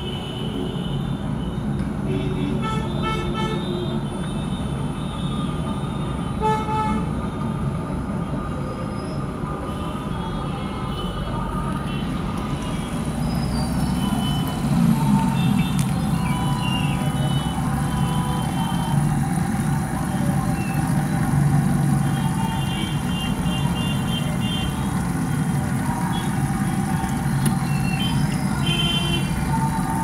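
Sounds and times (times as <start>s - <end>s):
road traffic: 0.0s - 30.0s
vehicle horns honking: 2.1s - 4.7s, 6.4s - 7.1s, 28.5s - 29.4s.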